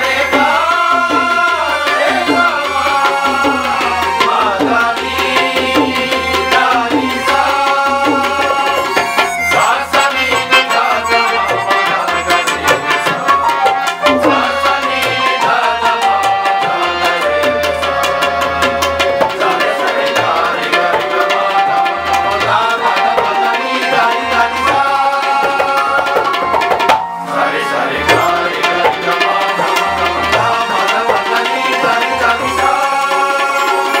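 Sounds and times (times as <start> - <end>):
tabla drums: 0.0 - 34.0
electronic keyboard melody: 6.9 - 31.5.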